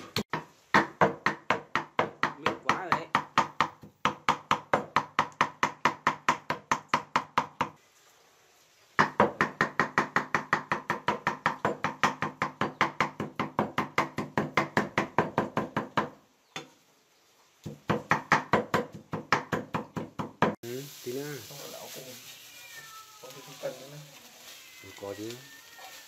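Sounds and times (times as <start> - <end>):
knife chopping on wooden board: 0.0 - 7.8, 9.0 - 16.2, 17.6 - 20.6.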